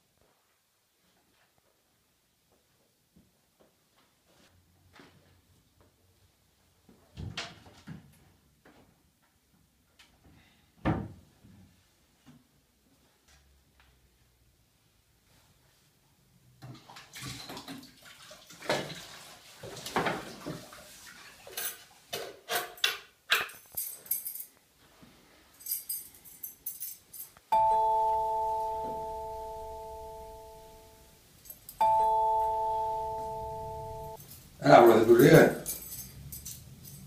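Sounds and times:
mobile phone ringing: 27.5 - 31.1, 31.8 - 34.2.

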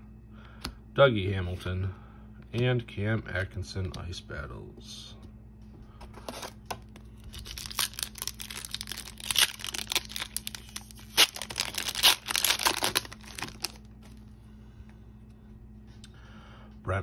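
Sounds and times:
wrapper tearing and crinkling: 7.2 - 13.9.

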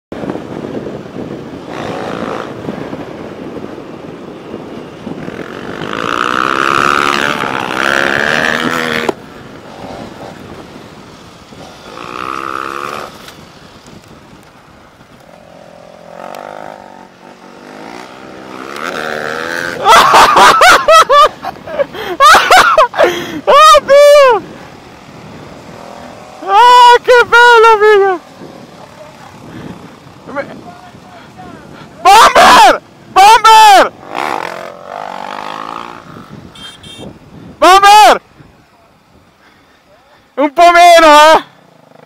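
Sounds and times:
wind rushing past: 0.1 - 39.4
wind buffeting microphone: 0.1 - 39.6
motorcycle engine revving: 1.1 - 3.8, 4.4 - 21.8, 24.4 - 31.0, 33.9 - 37.1.

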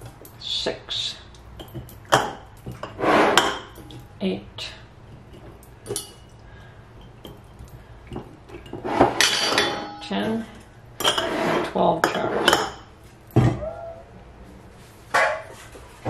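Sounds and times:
glass jars and bowl clinking: 5.2 - 6.4, 7.0 - 10.4.

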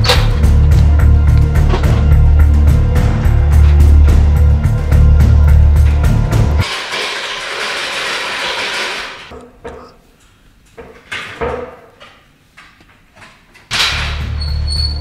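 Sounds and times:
music with heavy bass: 0.0 - 6.7
stepladder knocks and clanks: 10.7 - 12.2.

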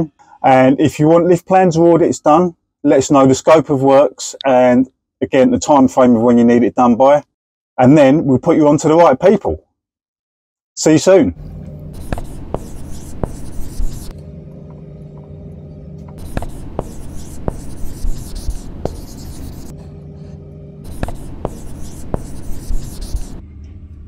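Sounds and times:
low hum: 11.3 - 24.0
marker pen writing on glass: 12.0 - 14.1, 16.2 - 19.7, 20.8 - 23.4.

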